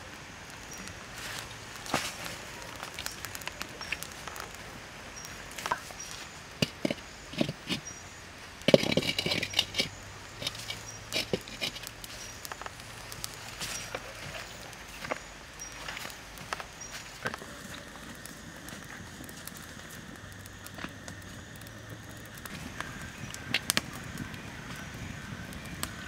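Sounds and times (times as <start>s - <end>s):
wood fire crackling: 0.0s - 26.0s
metal wok clattering on stand: 8.7s - 11.8s.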